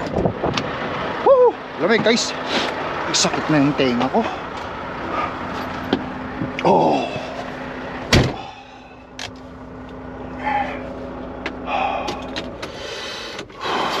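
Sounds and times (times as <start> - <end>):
low hum: 0.0 - 14.0
loud thump: 8.1 - 8.4.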